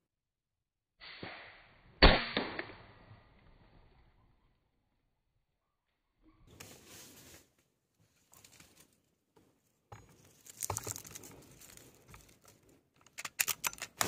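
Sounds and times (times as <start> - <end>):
crinkly rustling and handling: 6.6 - 14.0
sharp clicks: 13.0 - 14.0.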